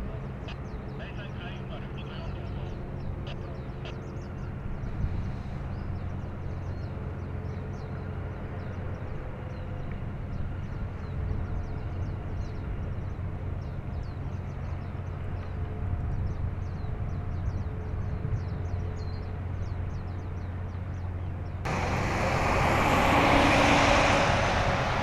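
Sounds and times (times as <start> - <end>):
small birds chirping: 0.4 - 8.0
ship engine drone: 21.7 - 25.0.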